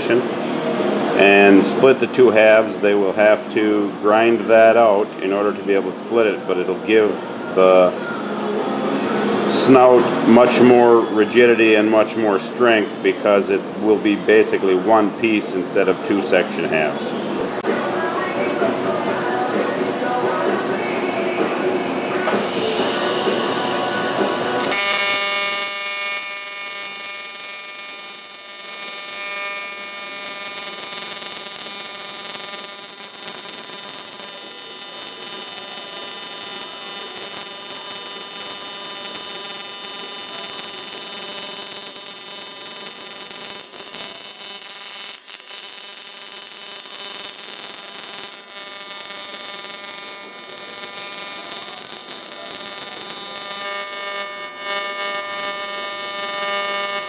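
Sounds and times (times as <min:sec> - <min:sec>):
arc welder buzzing: 0:16.3 - 0:57.0.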